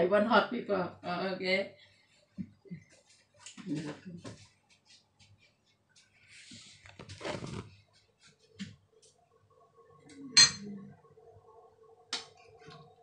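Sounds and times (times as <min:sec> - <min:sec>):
faint steady hum: 0:07.7 - 0:13.0.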